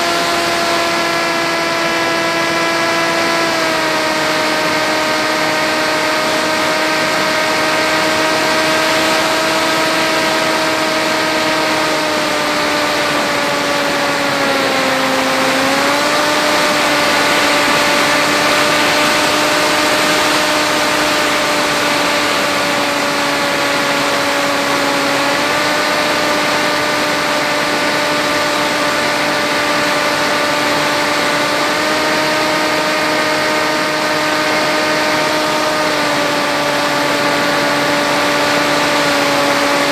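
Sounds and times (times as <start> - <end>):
electric motor and propeller: 0.0 - 39.9.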